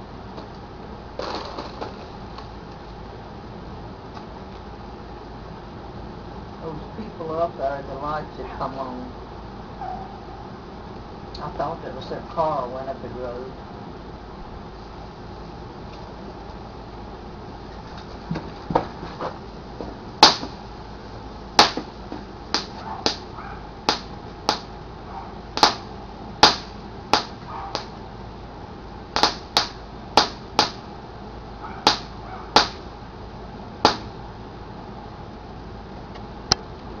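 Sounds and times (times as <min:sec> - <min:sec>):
fountain firework popping: 0:01.2 - 0:02.2, 0:20.2 - 0:20.6, 0:21.6 - 0:21.9, 0:22.5 - 0:23.3, 0:23.9 - 0:24.7, 0:25.6 - 0:27.9, 0:29.2 - 0:30.9, 0:31.8 - 0:32.9, 0:33.8 - 0:34.2.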